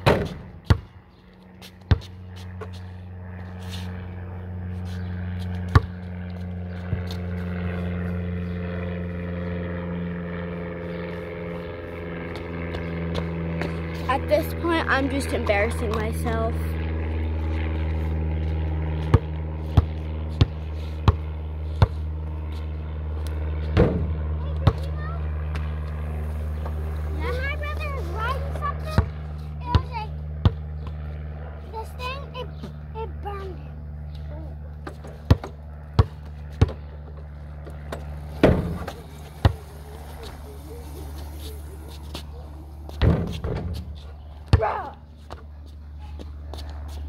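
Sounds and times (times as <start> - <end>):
basketball bouncing: 0.0 - 1.0, 1.8 - 2.7, 5.6 - 6.1, 19.0 - 22.0, 23.7 - 26.7, 28.9 - 31.0, 34.8 - 36.9, 37.6 - 40.4, 42.9 - 45.5
basketball bouncing on hard ground: 0.0 - 9.0, 11.8 - 14.0, 16.8 - 31.6, 34.1 - 47.0
low mechanical hum: 0.0 - 47.0.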